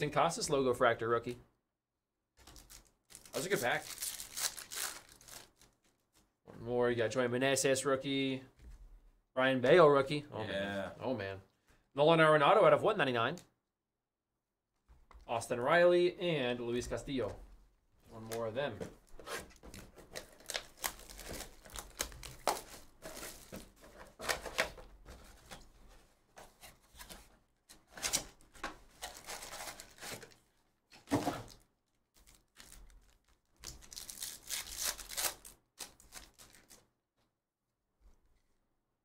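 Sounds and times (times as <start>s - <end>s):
wrapper crinkling: 2.4s - 5.9s, 20.1s - 23.8s, 31.4s - 36.8s
cardboard rustling and tearing: 19.1s - 25.6s, 29.0s - 30.4s, 32.2s - 36.8s.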